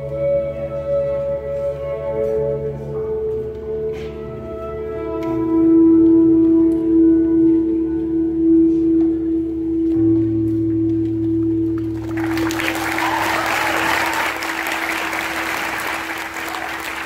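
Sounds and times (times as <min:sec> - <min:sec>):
audience applauding: 0:11.8 - 0:17.0.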